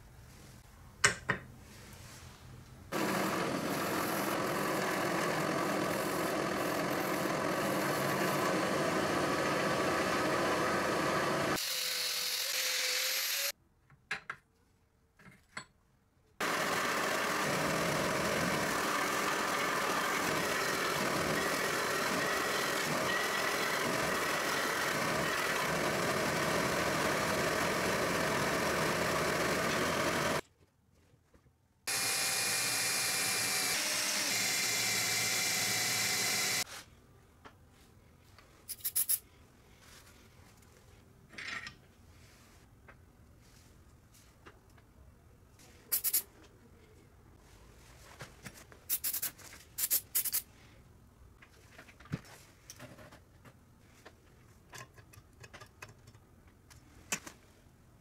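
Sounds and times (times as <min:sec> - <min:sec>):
power tool on metal: 0:02.9 - 0:13.5, 0:16.4 - 0:30.4, 0:31.9 - 0:36.7.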